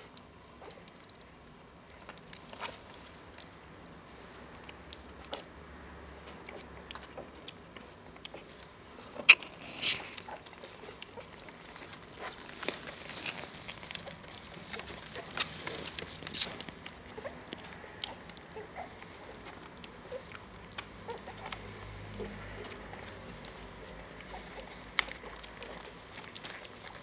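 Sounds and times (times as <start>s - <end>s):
puppies suckling clicks and smacks: 0.0s - 27.0s
puppies squeaking softly: 6.2s - 27.0s.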